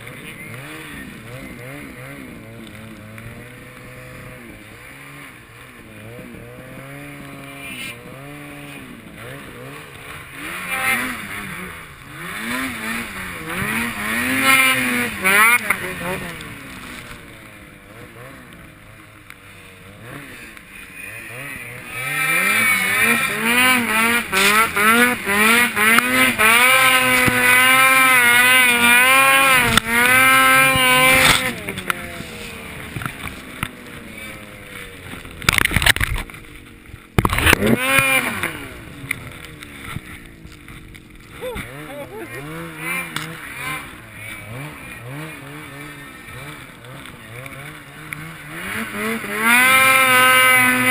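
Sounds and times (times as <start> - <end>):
snowmobile engine revving: 0.0 - 50.9.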